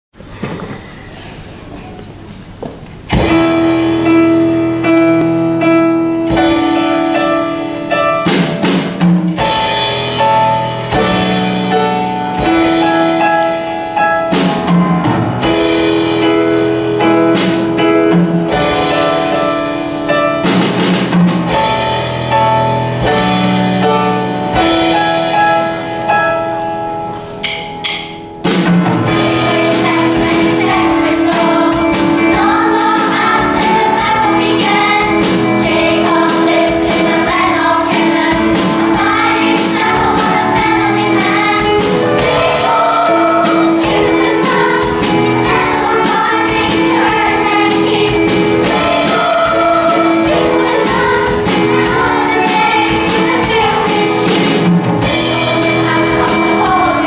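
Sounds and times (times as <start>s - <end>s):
grand piano: 0.2s - 57.0s
drum kit hits: 3.1s - 57.0s
children's choir singing: 29.1s - 57.0s.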